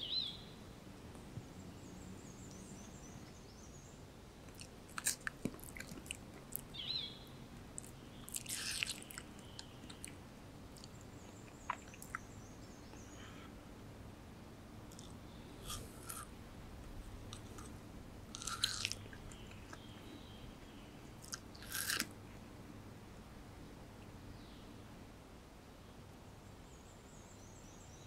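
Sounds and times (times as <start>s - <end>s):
small birds chirping: 0.0s - 13.6s, 14.9s - 16.3s, 17.1s - 22.0s, 25.8s - 28.0s
monkey crunching fruit: 4.5s - 6.8s, 7.7s - 12.2s, 14.9s - 16.3s, 17.2s - 20.2s, 21.2s - 22.2s.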